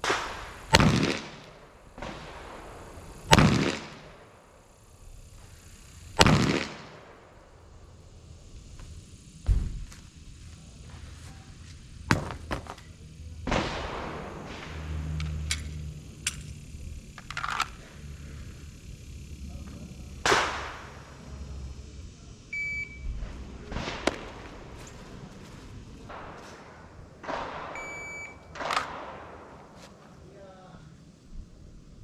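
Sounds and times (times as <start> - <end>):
pistol gunshots with echo: 0.0 - 4.4, 6.2 - 7.3, 13.4 - 15.5, 20.2 - 21.0, 26.1 - 29.8.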